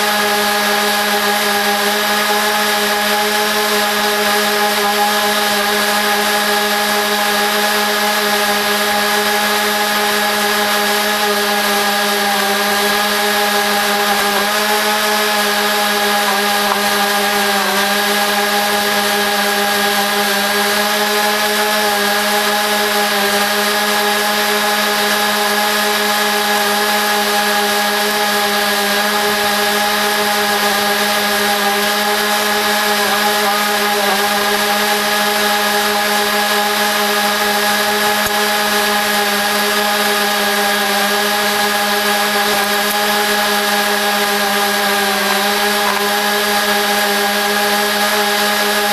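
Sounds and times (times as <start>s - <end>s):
lawn mower engine running: 0.0s - 48.9s.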